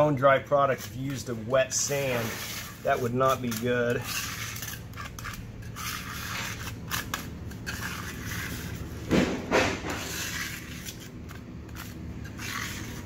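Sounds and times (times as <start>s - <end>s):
putty knife scraping concrete: 0.0s - 9.1s, 9.8s - 13.0s
knocks: 9.1s - 10.0s.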